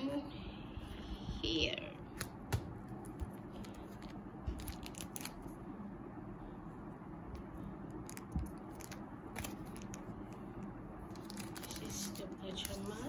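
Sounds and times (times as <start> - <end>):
plastic sleeves crinkling: 3.5 - 5.5, 8.0 - 10.4, 11.0 - 13.0.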